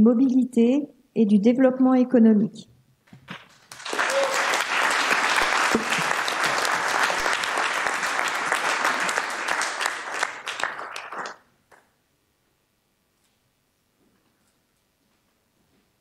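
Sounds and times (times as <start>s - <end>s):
audience clapping: 3.4s - 11.9s.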